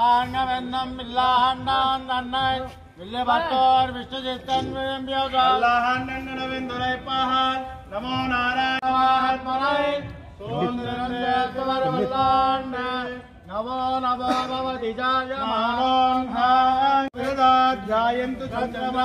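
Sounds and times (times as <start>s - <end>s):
men chanting a hymn in unison: 0.0s - 19.0s.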